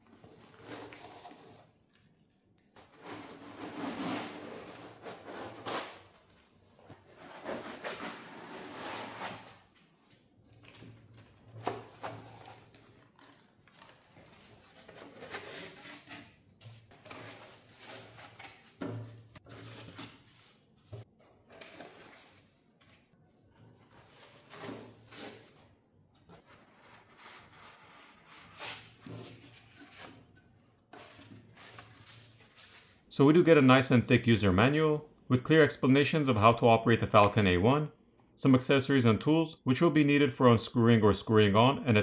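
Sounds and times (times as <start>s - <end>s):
foam rubbing and scraping: 2.9s - 5.9s.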